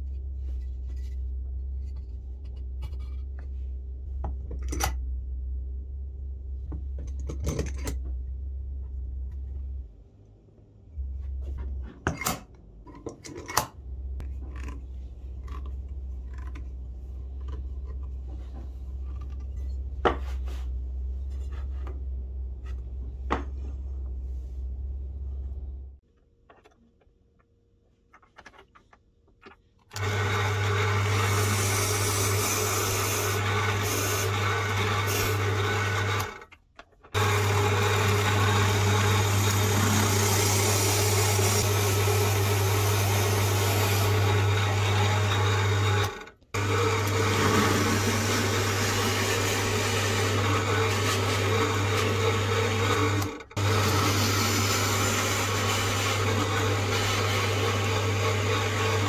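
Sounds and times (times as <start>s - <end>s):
drill press boring into wood: 30.0s - 36.4s, 37.2s - 59.0s.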